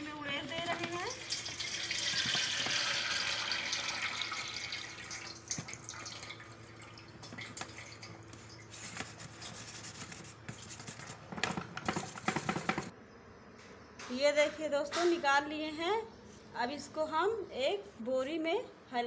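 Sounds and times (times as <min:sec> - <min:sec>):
liquid dripping: 0:00.8 - 0:08.7
brine pouring into a steel bowl: 0:01.1 - 0:06.9.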